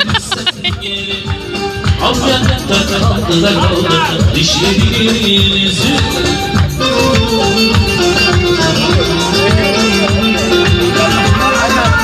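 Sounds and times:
loud dance music: 0.0s - 12.0s.

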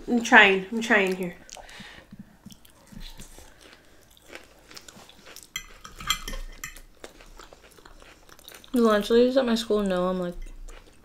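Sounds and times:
crunchy chewing of salad: 1.0s - 9.6s, 10.2s - 11.0s
forks scraping glass dishes: 5.5s - 6.9s.

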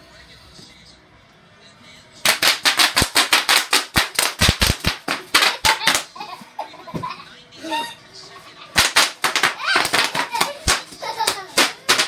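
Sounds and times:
bubble wrap popping: 2.3s - 6.1s.

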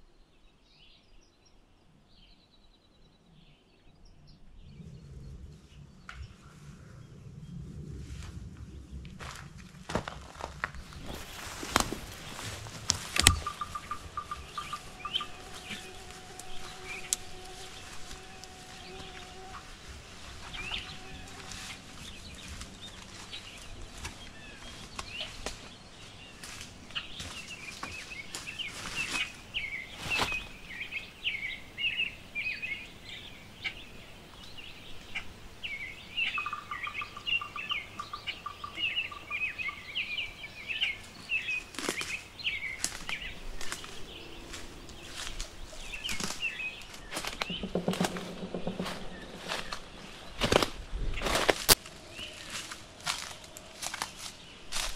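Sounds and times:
footsteps on forest floor: 9.2s - 30.6s, 41.0s - 54.9s
small birds chirping: 10.4s - 54.9s.

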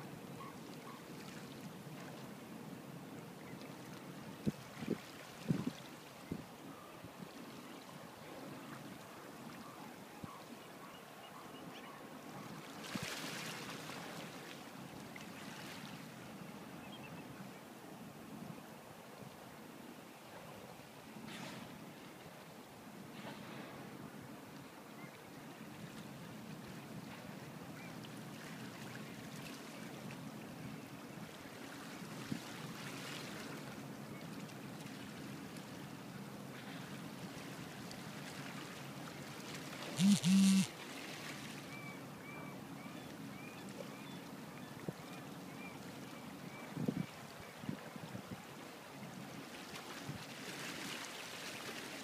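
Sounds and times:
wind: 0.0s - 52.0s
water lapping: 36.5s - 41.9s.

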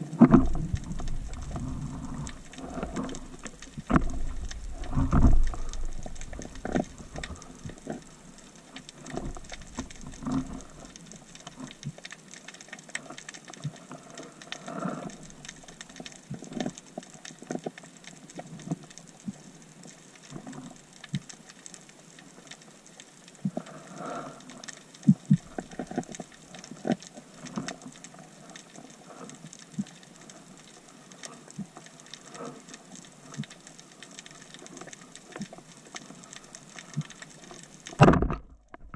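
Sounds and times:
underwater clicks and knocks: 0.0s - 13.8s, 25.0s - 28.0s, 33.3s - 38.9s.

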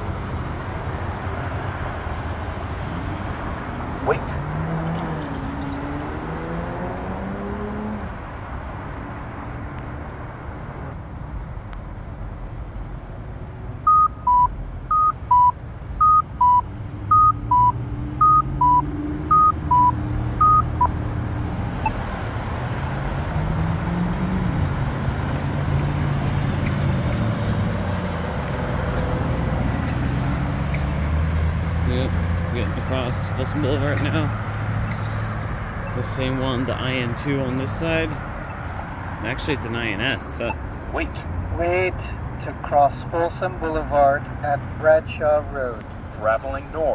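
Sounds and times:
road traffic: 0.0s - 46.9s
two-note pedestrian signal beeps: 13.9s - 20.9s.

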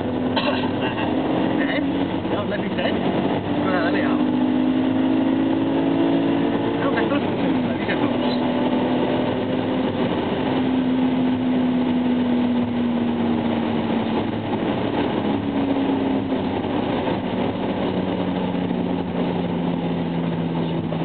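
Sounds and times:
car engine drone: 0.0s - 21.0s
road noise: 0.0s - 21.0s.

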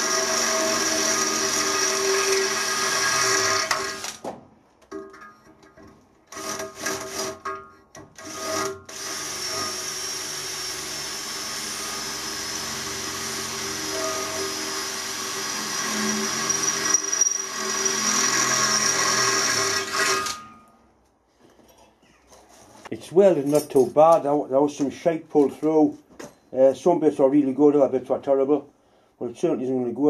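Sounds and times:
electric drill drilling metal: 0.0s - 4.2s, 8.2s - 20.5s.

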